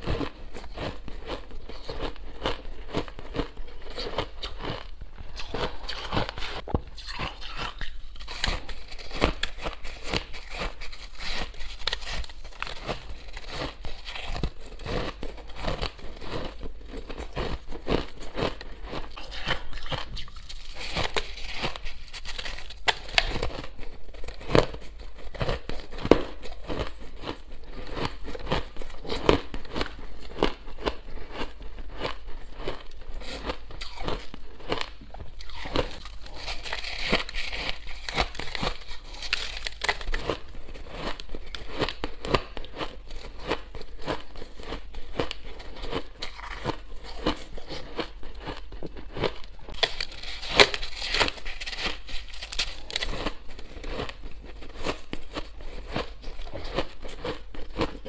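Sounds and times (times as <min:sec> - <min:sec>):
chewing crushed ice: 0:00.0 - 0:58.0
fingers raking through ice: 0:35.4 - 0:40.4, 0:49.8 - 0:58.0.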